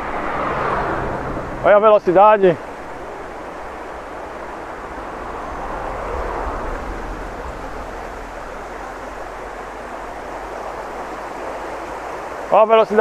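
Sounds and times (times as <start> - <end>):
low rumble: 0.0 - 1.8, 2.9 - 11.5
river water rushing: 0.0 - 13.0.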